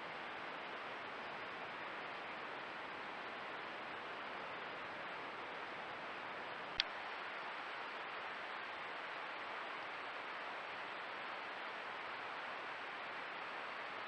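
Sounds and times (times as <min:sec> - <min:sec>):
microphone hiss: 0:00.0 - 0:14.0.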